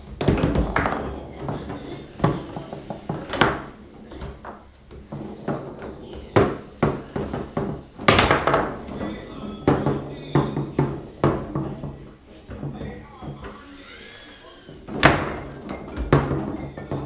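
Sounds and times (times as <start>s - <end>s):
ball rattling against table walls: 0.0s - 13.6s, 14.7s - 17.0s
foosball ball knocks and clacks: 0.0s - 13.6s, 14.8s - 17.0s.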